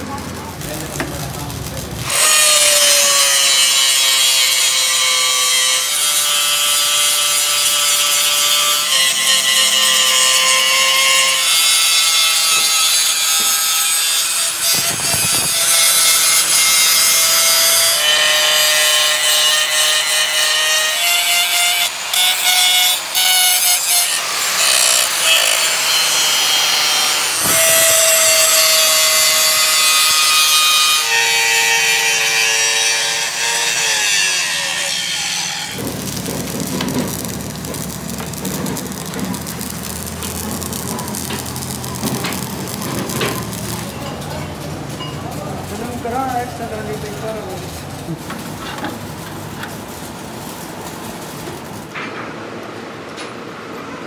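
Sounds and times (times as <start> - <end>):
power tool grinding metal: 2.0 - 44.6.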